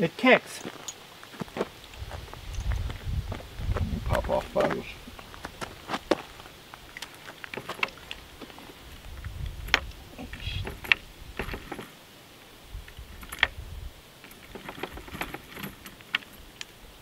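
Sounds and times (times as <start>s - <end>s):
guns and cartridges clattering: 10.6s - 12.0s, 14.2s - 16.4s.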